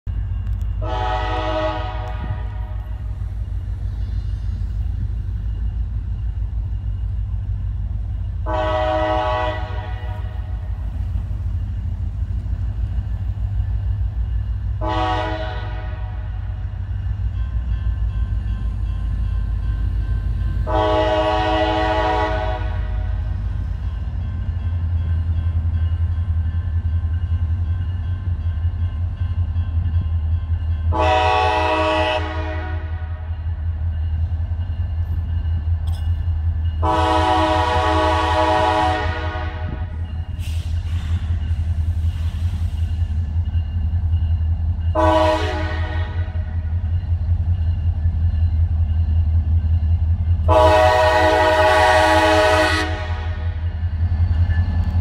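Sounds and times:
distant locomotive air horn blasts: 0:00.5 - 0:03.2, 0:08.4 - 0:10.8, 0:14.7 - 0:16.8, 0:20.6 - 0:23.6, 0:30.9 - 0:33.4, 0:36.8 - 0:41.4, 0:44.9 - 0:46.8, 0:50.4 - 0:53.8.

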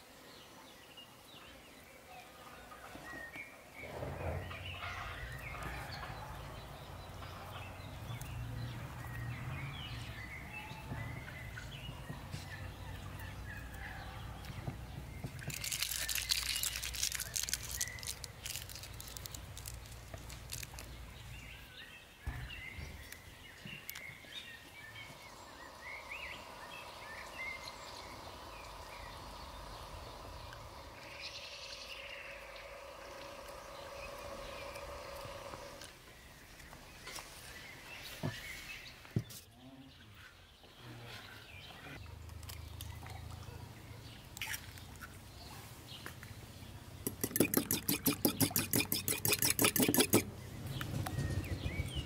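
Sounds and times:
birds chirping: 0:00.0 - 0:52.0
rustling: 0:15.3 - 0:21.5
steady hum: 0:24.7 - 0:35.9.

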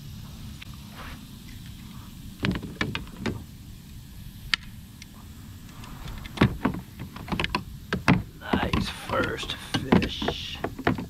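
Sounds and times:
low steady rumble: 0:00.0 - 0:11.0
landing net knocking on kayak: 0:06.4 - 0:11.0.

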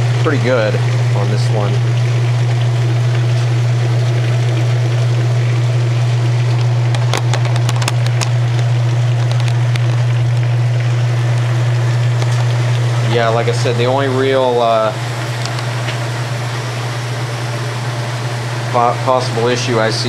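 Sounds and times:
washing machine motor humming: 0:00.0 - 0:20.0
water draining: 0:00.0 - 0:20.0.

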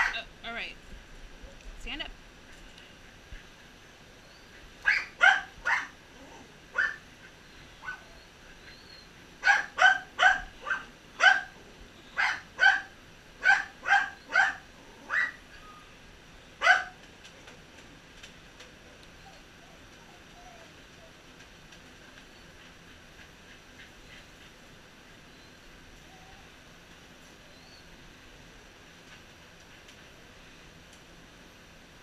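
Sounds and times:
dog barking: 0:04.8 - 0:06.0, 0:06.8 - 0:07.0, 0:09.4 - 0:11.6, 0:12.2 - 0:15.4, 0:16.6 - 0:17.0.

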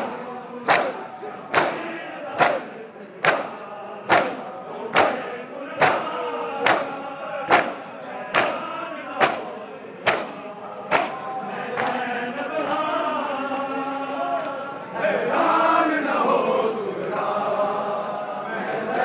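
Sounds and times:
crowd beating chests: 0:00.0 - 0:12.9
men chanting: 0:00.0 - 0:19.0.

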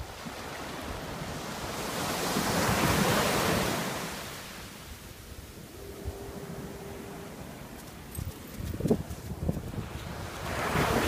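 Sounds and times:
wind buffeting microphone: 0:05.2 - 0:11.0.

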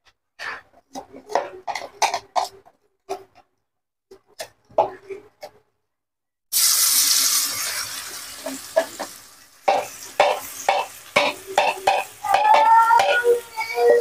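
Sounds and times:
spatula scraping pan: 0:00.4 - 0:03.2, 0:07.6 - 0:14.0
paste sizzling in hot oil: 0:06.5 - 0:14.0.

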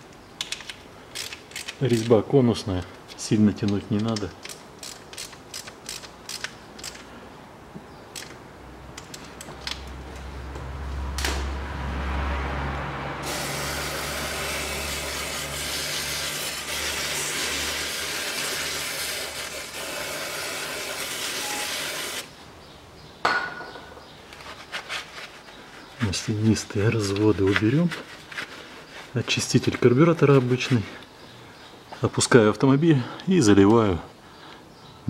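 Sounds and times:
ratchet clicks: 0:00.4 - 0:02.2, 0:03.1 - 0:07.1, 0:08.1 - 0:08.4.

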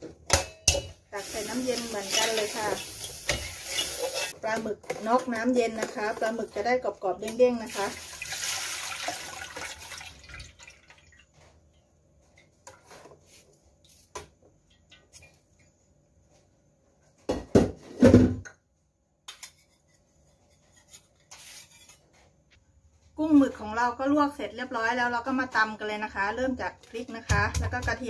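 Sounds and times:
water splashing into metal wok: 0:07.6 - 0:11.3.

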